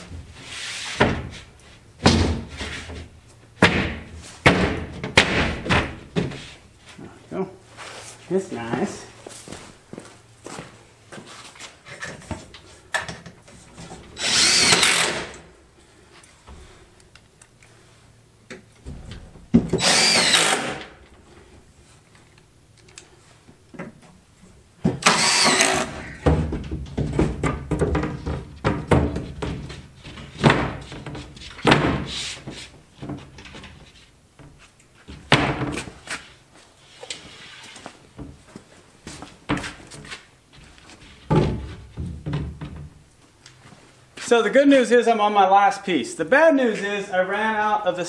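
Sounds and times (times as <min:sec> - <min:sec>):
cordless drill driving screws: 0:14.2 - 0:15.4, 0:19.8 - 0:20.9, 0:25.0 - 0:26.0.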